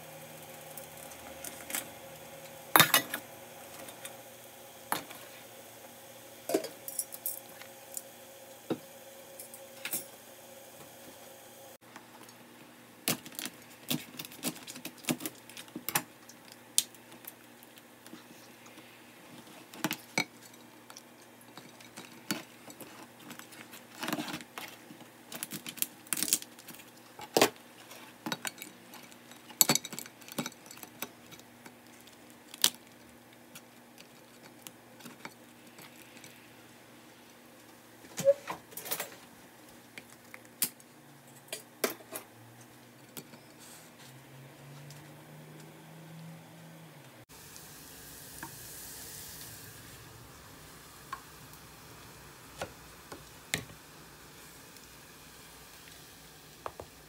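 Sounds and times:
faint steady hum: 0.0s - 57.0s
utensils and dishes clinking: 2.7s - 4.2s, 6.5s - 7.7s, 9.4s - 10.2s, 28.3s - 31.4s, 38.2s - 39.2s.

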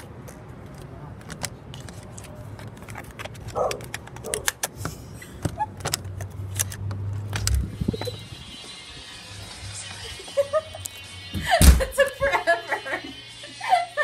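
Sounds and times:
door lock metallic clicks and rattles: 2.9s - 4.8s
door opening thump: 11.4s - 12.0s.

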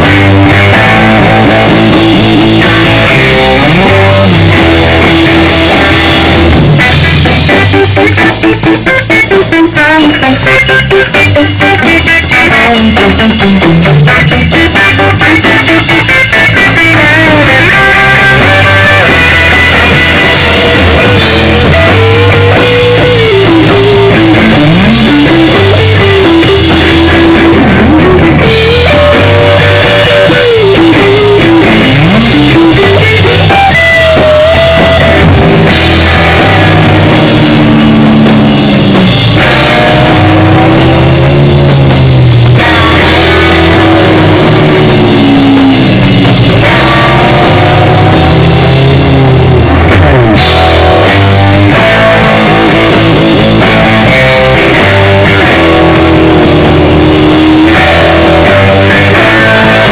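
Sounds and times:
bass guitar: 0.0s - 59.9s
drum kit: 0.0s - 59.9s
electric guitar melody: 0.0s - 59.9s.

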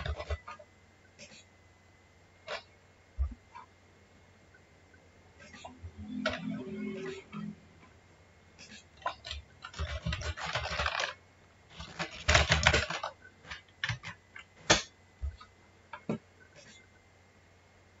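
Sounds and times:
typing on computer keyboard: 0.0s - 0.6s, 9.0s - 15.5s.

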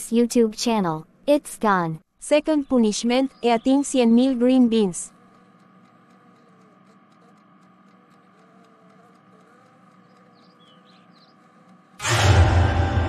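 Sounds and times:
faint background hum: 0.0s - 12.0s
faint ticks: 3.2s - 12.0s
small squeaks: 3.3s - 12.0s.

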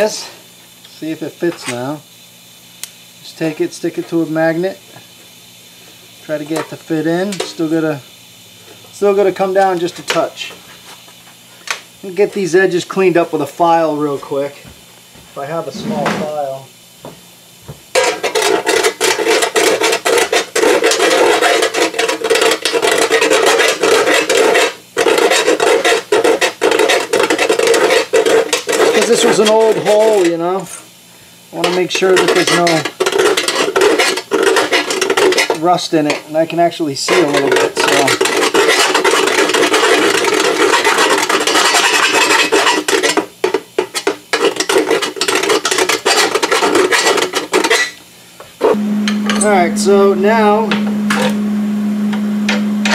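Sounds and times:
hand file rasping on sheet metal: 18.0s - 30.0s.

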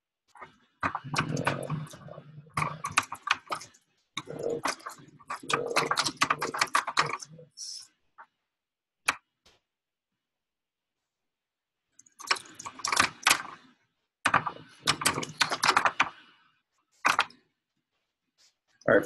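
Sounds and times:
keyboard typing: 0.4s - 7.8s, 12.0s - 16.3s, 17.0s - 17.4s.

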